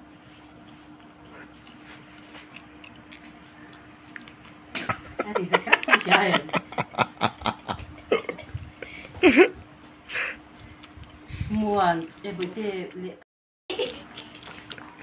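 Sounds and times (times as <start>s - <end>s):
boy laughing: 4.8s - 9.6s.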